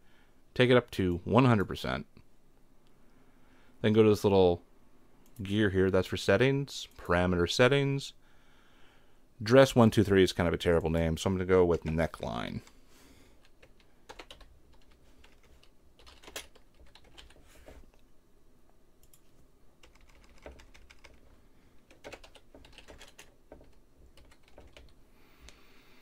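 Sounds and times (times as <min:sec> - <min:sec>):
typing on computer keyboard: 0:13.4 - 0:17.4, 0:19.8 - 0:21.2, 0:21.9 - 0:25.0.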